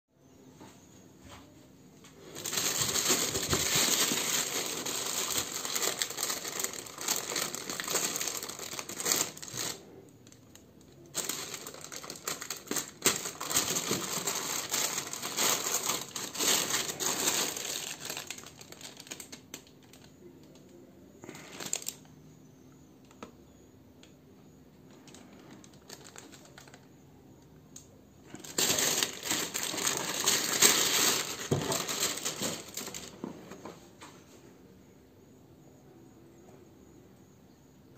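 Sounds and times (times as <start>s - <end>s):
plastic bag crinkling: 2.2s - 22.1s, 24.9s - 27.0s, 28.3s - 33.3s.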